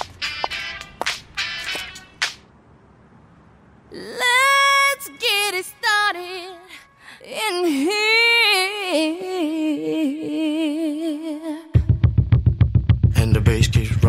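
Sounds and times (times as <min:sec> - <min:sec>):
woman singing long notes: 0:03.9 - 0:11.8.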